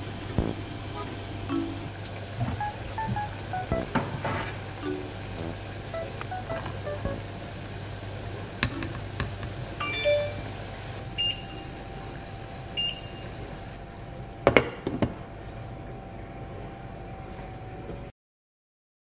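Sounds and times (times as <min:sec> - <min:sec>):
short high beeps: 0:05.4 - 0:07.2.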